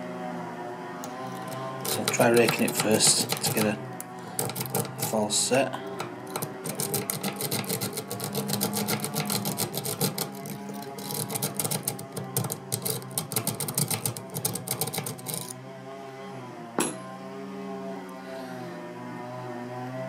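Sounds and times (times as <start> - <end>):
lock pick raking clicks: 1.0 - 5.2, 5.8 - 15.5.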